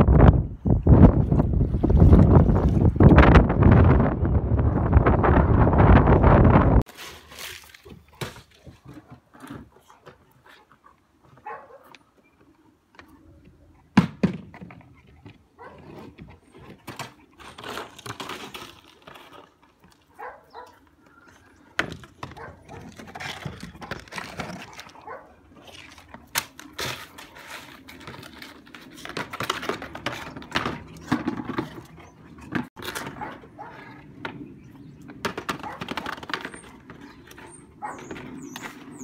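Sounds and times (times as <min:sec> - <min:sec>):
dog sounds: 0:07.9 - 0:14.0, 0:14.8 - 0:17.8, 0:20.0 - 0:28.2, 0:28.8 - 0:34.2, 0:35.4 - 0:39.0.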